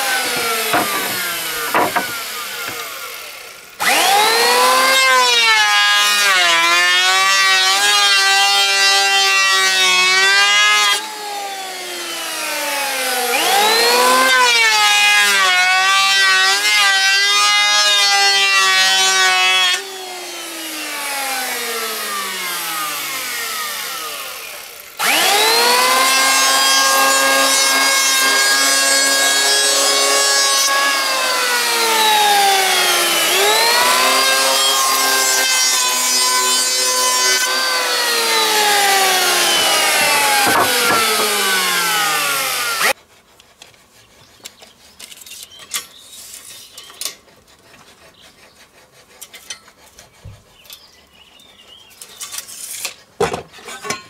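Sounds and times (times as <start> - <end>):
electric hand planer motor whining: 0.0 - 43.0.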